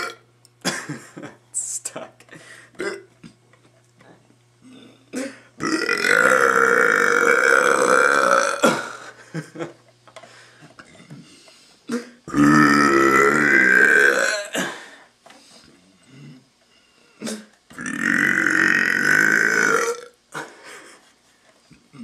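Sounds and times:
man belching loudly: 0:00.0 - 0:00.2, 0:02.8 - 0:03.1, 0:04.6 - 0:09.0, 0:11.9 - 0:14.7, 0:17.2 - 0:20.2.

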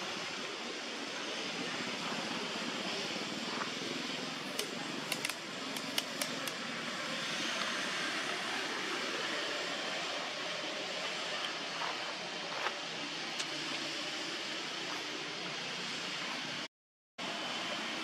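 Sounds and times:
outdoor background noise: 0:00.0 - 0:18.0
sharp clicks: 0:04.5 - 0:06.6.

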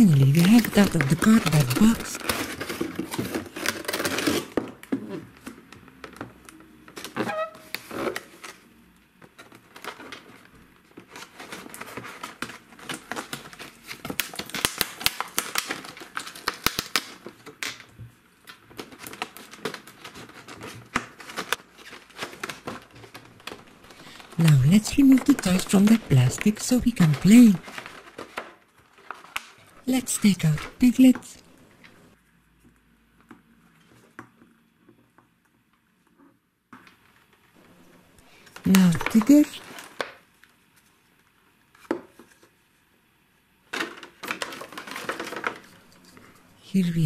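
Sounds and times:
plastic packaging crinkling: 0:00.0 - 0:04.6, 0:09.3 - 0:32.1, 0:38.3 - 0:40.6, 0:43.8 - 0:46.6.

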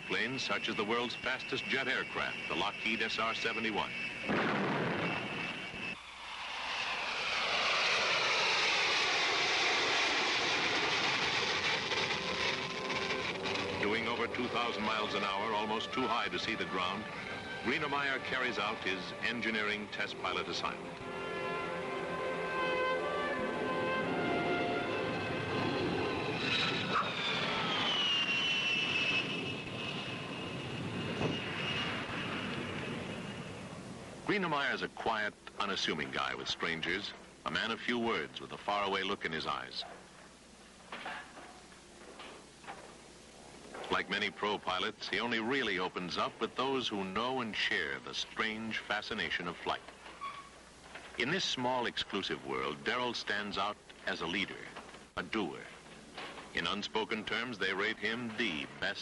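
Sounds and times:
jet engine roar: 0:00.0 - 0:34.9.

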